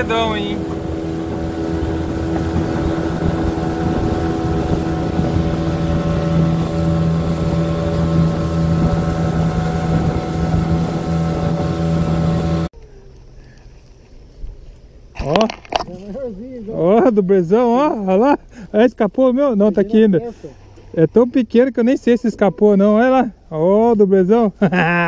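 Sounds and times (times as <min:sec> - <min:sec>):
wind buffeting microphone: 0:00.0 - 0:12.7
outboard motor humming: 0:00.0 - 0:13.6, 0:19.6 - 0:23.5.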